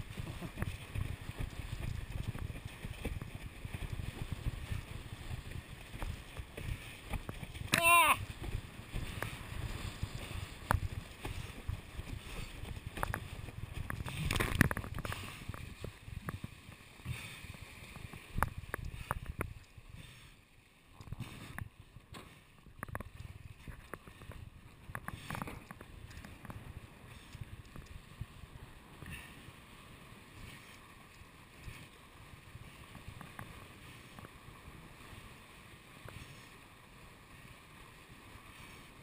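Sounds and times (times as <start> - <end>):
hull slapping on water: 0.0 - 19.6
rushing water: 0.0 - 39.0.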